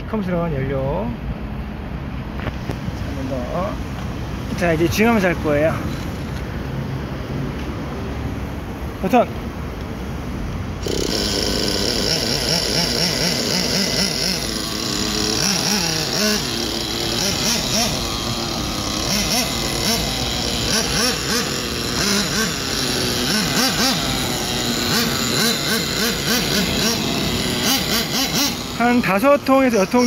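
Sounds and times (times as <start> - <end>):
rc car engine revving: 4.5 - 6.4, 10.7 - 30.0.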